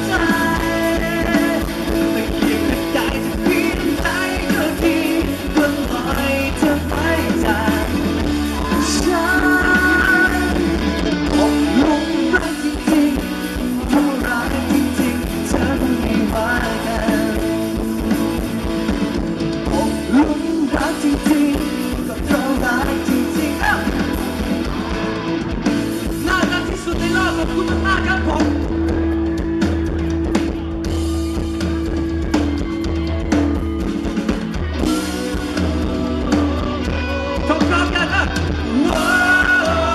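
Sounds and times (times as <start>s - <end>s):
man singing into microphone: 0.0s - 18.6s, 19.6s - 24.3s, 26.2s - 28.6s, 35.9s - 39.9s
rock band playing: 0.0s - 39.9s.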